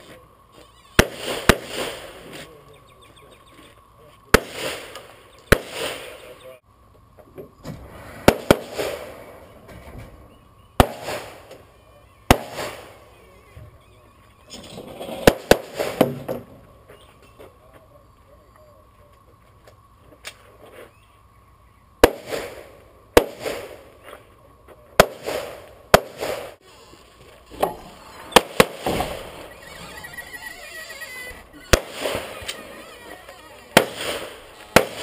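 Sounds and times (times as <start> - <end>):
pistol shots echoing: 4.3 - 6.2, 10.8 - 11.5, 12.3 - 13.0, 28.4 - 29.2, 31.7 - 32.3, 33.8 - 35.0.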